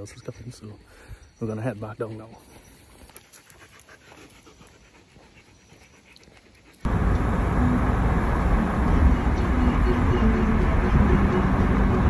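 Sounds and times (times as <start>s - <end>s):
dog panting: 1.9s - 6.9s
vehicle road and wind noise: 6.8s - 12.0s.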